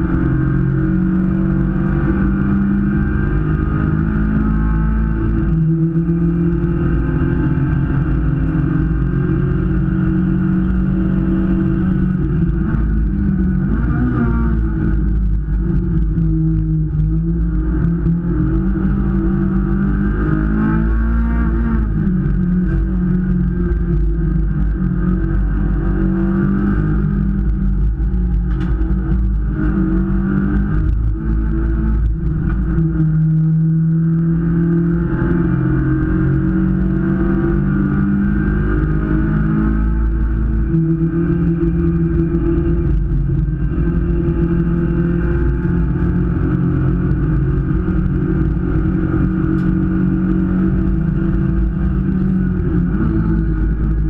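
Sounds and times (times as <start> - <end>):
race car engine running hard: 0.0 - 54.0
road and wind noise: 0.0 - 54.0.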